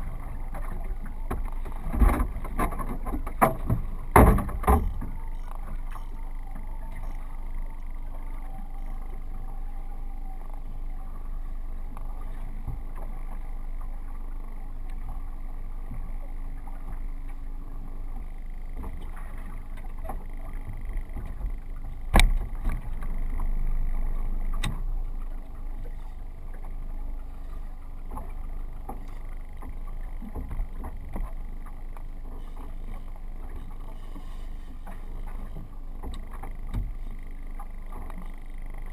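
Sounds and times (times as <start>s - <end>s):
faint low hum: 0.0s - 38.9s
water lapping against boat hull: 0.0s - 38.9s
sharp knocks on boat: 0.6s - 5.9s, 18.7s - 23.5s, 34.8s - 38.3s.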